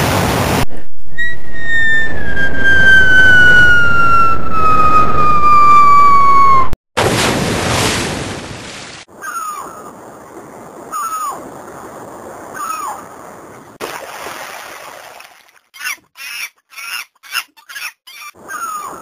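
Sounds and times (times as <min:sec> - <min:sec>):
high falling chirp: 0:01.1 - 0:06.8
cartoon falling whistle: 0:01.2 - 0:06.8.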